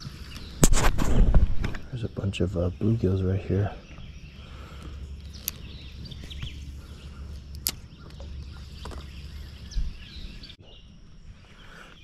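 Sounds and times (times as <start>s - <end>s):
faint bird calls: 1.8s - 12.0s
sharp clicks: 4.8s - 5.7s, 7.5s - 8.2s.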